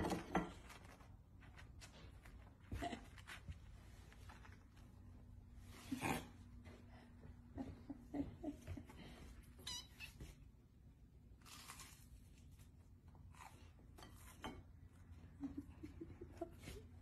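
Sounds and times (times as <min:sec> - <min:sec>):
rustling and handling noises: 0:00.0 - 0:05.9.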